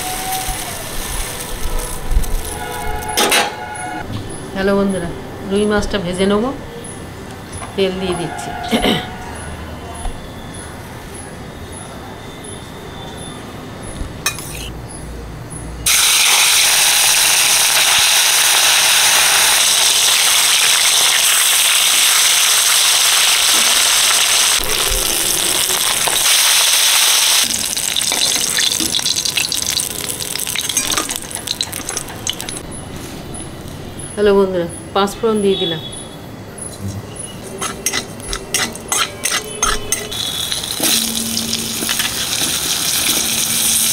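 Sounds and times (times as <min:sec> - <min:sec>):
fish sizzling in hot oil: 0:00.0 - 0:02.8, 0:15.9 - 0:32.6, 0:40.1 - 0:43.9.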